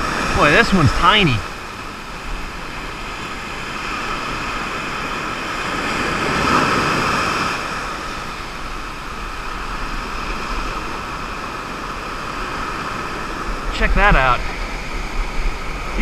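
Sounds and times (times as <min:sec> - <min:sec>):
waves breaking on sand: 0:00.0 - 0:16.0.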